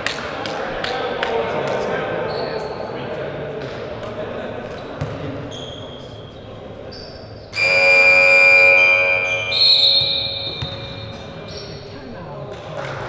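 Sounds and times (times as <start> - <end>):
referee's whistle blast: 7.5 - 11.8
scoreboard buzzer: 7.6 - 11.5.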